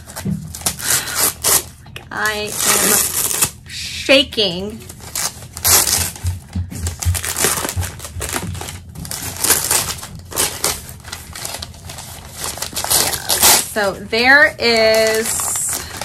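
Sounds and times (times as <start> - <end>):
paper crinkling and rustling: 4.7 - 16.0.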